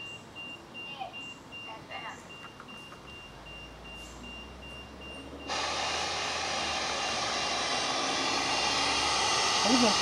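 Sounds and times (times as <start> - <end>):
meter beeping high beeps: 0.0 - 5.6
loud rushing noise: 5.4 - 10.0.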